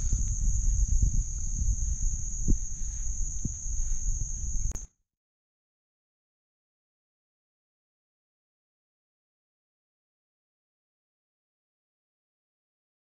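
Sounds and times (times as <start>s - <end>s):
insects trilling: 0.0s - 4.8s
low rumble: 0.0s - 4.8s.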